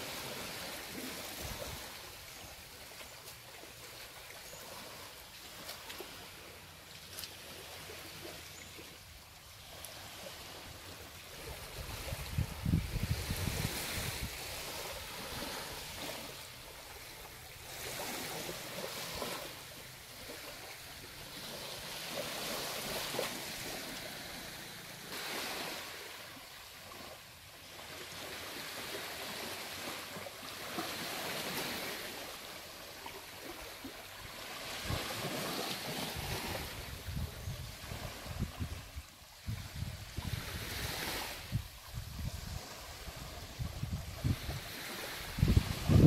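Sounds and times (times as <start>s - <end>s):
waves washing onto sand: 0.0s - 46.0s
wind rumbling on microphone: 11.4s - 16.1s, 36.0s - 46.0s.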